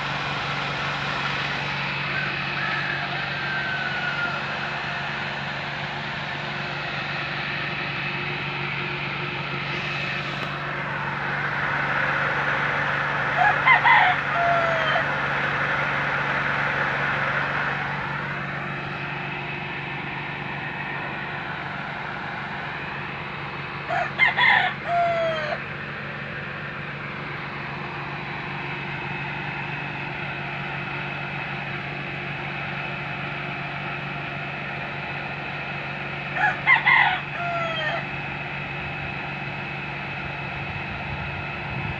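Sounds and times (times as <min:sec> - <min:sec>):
steady mechanical hum: 0:00.0 - 0:41.9
rooster crowing: 0:01.1 - 0:05.6, 0:09.7 - 0:19.5, 0:23.8 - 0:25.6, 0:36.3 - 0:38.2.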